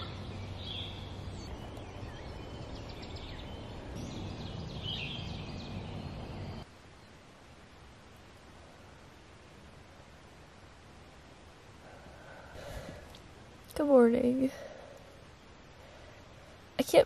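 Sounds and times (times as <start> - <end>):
songbirds chirping and trilling: 0.0 - 7.4
low outdoor rumble: 0.0 - 17.0.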